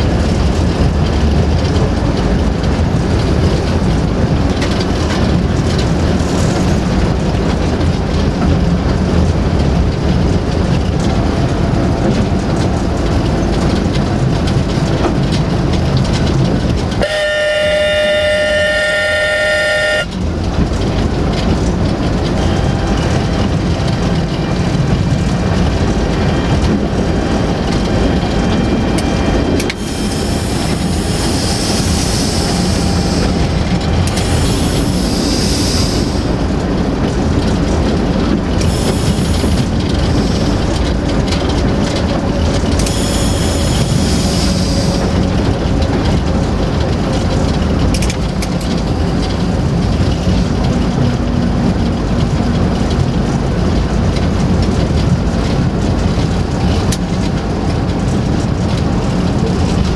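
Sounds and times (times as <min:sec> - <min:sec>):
diesel locomotive engine rumble: 0:00.0 - 0:59.9
locomotive horn blast: 0:16.9 - 0:20.2.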